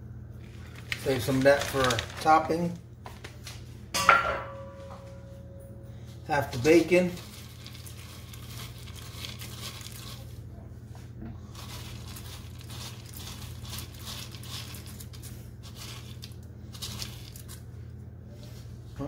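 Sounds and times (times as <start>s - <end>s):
steady low hum: 0.0s - 19.0s
bacon bits crackling: 0.4s - 2.8s, 6.4s - 10.4s, 11.4s - 17.7s.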